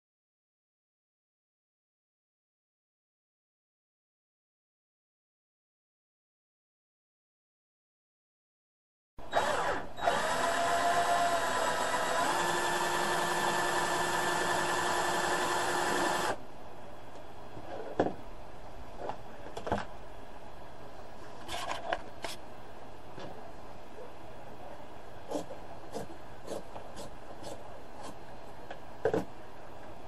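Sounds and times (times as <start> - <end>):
cordless drill whining: 9.3 - 16.4.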